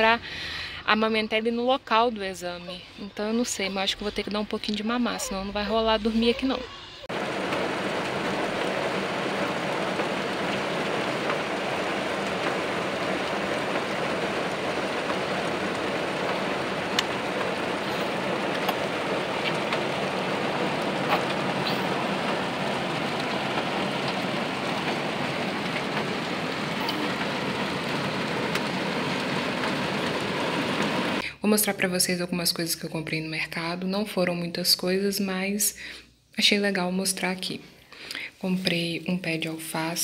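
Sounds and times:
rain on car roof: 7.1s - 31.2s
raindrop ticks: 7.2s - 31.2s.

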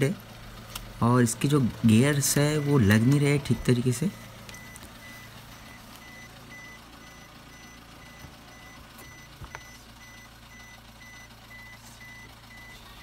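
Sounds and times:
low steady hum: 0.0s - 13.0s
car warning chime beeping: 1.2s - 13.0s.

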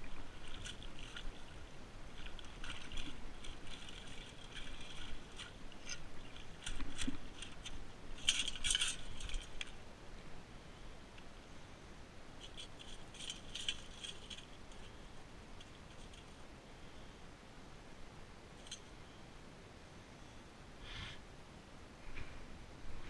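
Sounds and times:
stones and pebbles clinking: 0.0s - 9.8s, 12.4s - 15.0s.

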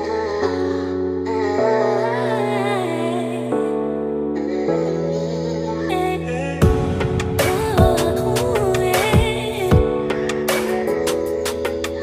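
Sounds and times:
deep kick drum hits: 6.6s - 8.2s
melody over chords and beat: 6.6s - 12.0s.

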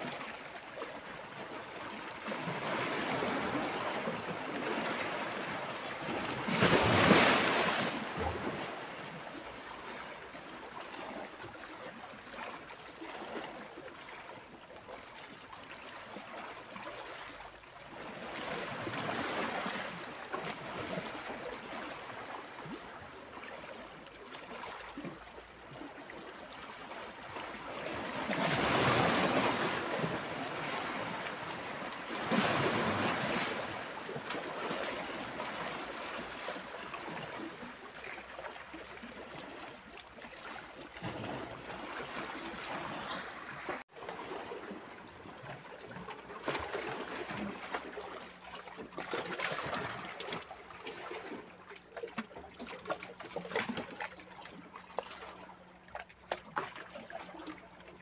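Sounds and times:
waves washing over rocks: 6.3s - 8.8s, 27.9s - 33.9s.

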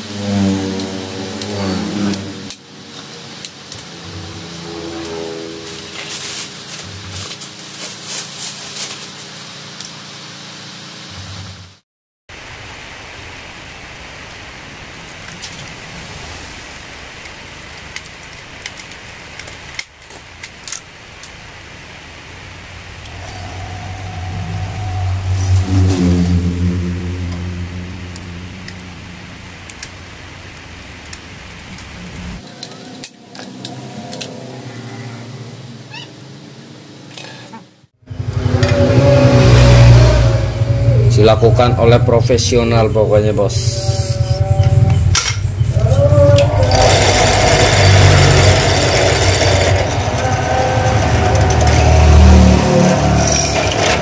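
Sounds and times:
motor vehicle passing: 0.0s - 7.7s, 22.7s - 32.4s, 38.0s - 42.1s, 43.6s - 54.0s
rustling: 5.7s - 9.6s.

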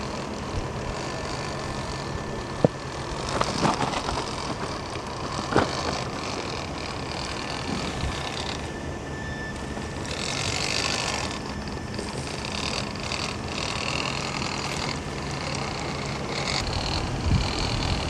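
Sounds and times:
electric motor and gearbox whining: 0.0s - 18.0s.

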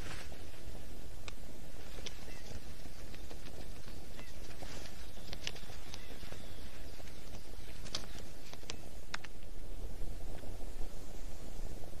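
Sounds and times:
steady low rumble: 0.0s - 12.0s
high ticks and chirps: 0.6s - 9.5s.

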